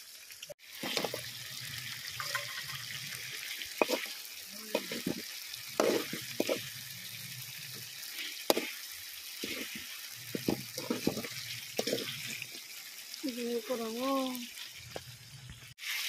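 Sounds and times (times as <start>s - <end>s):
curry sizzling in a pan: 0.0s - 16.0s
steel spoon scraping a pan: 0.7s - 1.4s, 2.0s - 12.7s.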